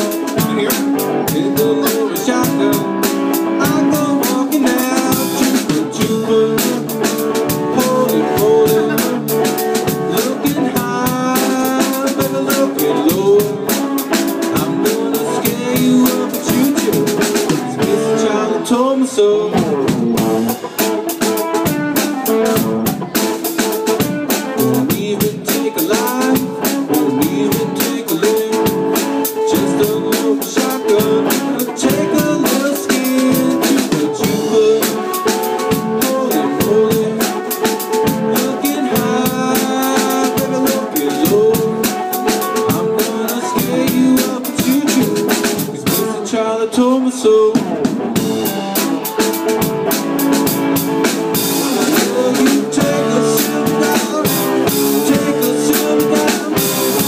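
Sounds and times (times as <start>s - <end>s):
drum kit steady beat: 0.0s - 18.4s, 19.5s - 46.3s, 47.5s - 57.0s
electric guitar with bending notes: 0.0s - 57.0s.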